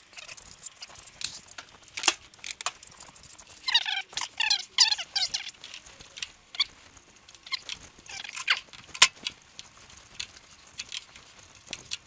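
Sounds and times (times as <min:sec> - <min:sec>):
high squeaky chirps: 0:00.0 - 0:01.6, 0:02.8 - 0:09.1.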